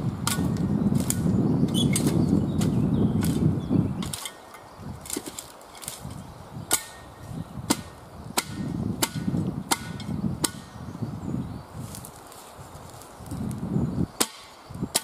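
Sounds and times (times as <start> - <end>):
shovel chopping firewood: 0.0 - 10.8, 14.2 - 15.0.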